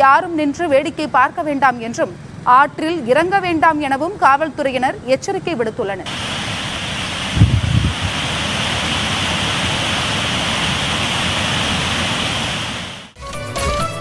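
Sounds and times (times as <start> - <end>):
water rushing over a weir: 6.1 - 13.2.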